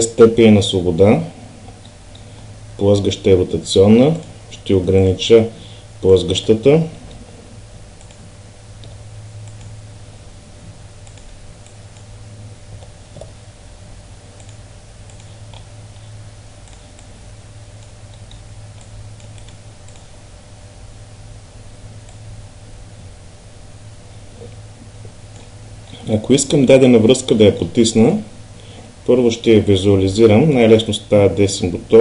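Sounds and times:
steady low hum: 0.0s - 32.0s
mouse clicking: 8.0s - 9.8s, 11.0s - 12.1s, 14.4s - 15.7s, 16.6s - 17.1s, 17.8s - 20.1s
computer keys typing: 11.0s - 12.1s, 14.4s - 15.7s, 16.6s - 17.2s, 17.8s - 20.1s.

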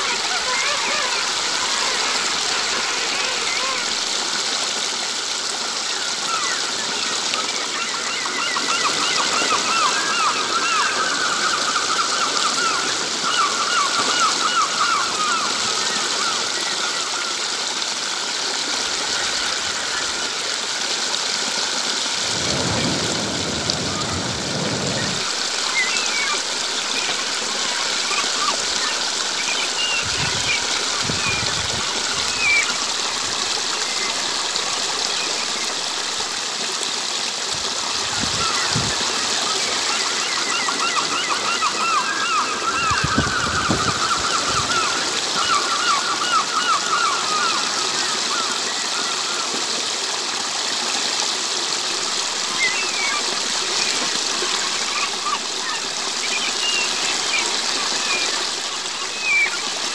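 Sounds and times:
stream water splashing over stones: 0.0s - 59.9s
birds chirping: 22.1s - 36.4s, 51.9s - 59.9s.

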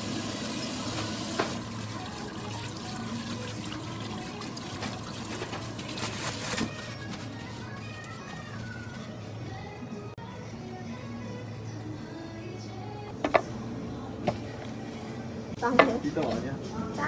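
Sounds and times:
tap water running into sink: 0.0s - 6.2s.

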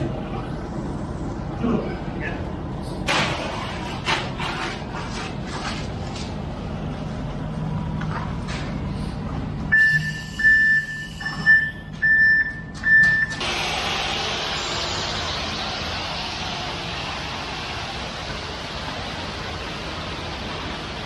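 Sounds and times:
diesel engine running: 0.0s - 21.0s
reversing alarm beeping: 9.7s - 13.4s.

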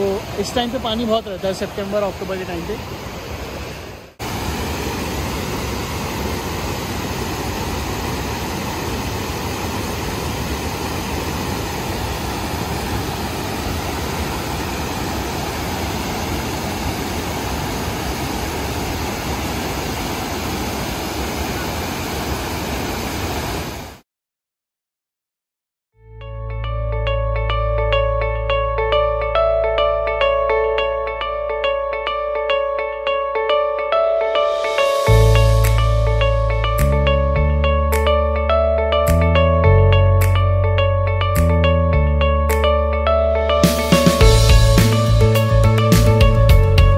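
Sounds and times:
river rushing over weir: 0.0s - 24.0s.

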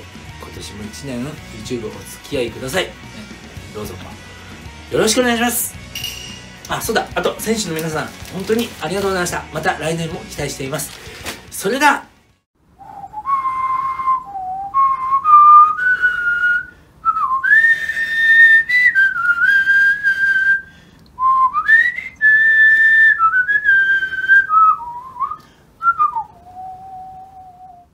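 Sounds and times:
person whistling a slow tune: 12.8s - 27.9s.

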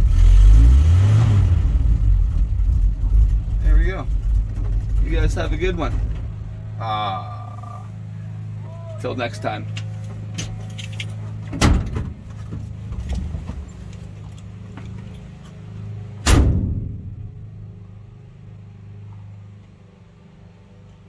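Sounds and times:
engine idling: 0.0s - 21.0s
car door clunking open: 4.2s - 6.8s, 9.8s - 15.3s, 16.2s - 17.4s
car door slamming: 11.5s - 13.7s, 16.2s - 17.4s.

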